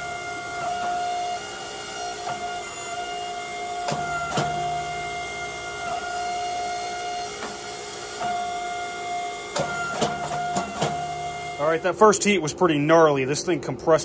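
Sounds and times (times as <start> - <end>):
forge hissing and whining: 0.0 - 14.0.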